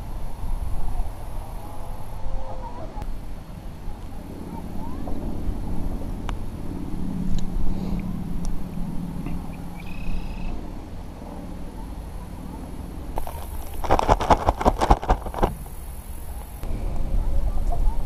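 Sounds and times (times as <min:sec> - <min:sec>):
steady low hum: 0:00.0 - 0:18.0
wind buffeting microphone: 0:13.1 - 0:18.0.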